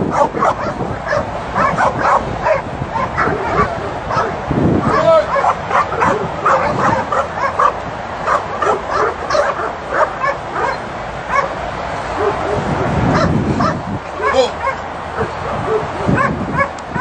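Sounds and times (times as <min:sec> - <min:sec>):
dog yipping and whining: 0:00.1 - 0:07.7.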